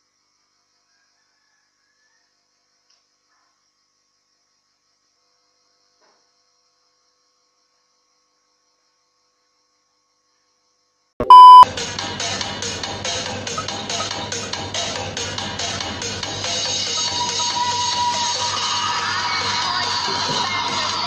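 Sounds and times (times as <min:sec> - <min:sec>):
loud test-tone beep: 0:11.2 - 0:11.6.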